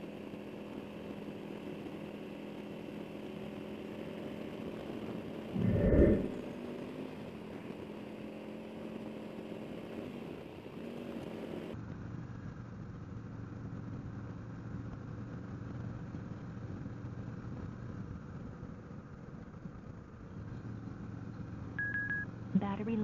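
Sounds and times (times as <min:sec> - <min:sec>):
motorcycle engine running: 0:00.0 - 0:23.0
low steady hum: 0:05.5 - 0:06.5.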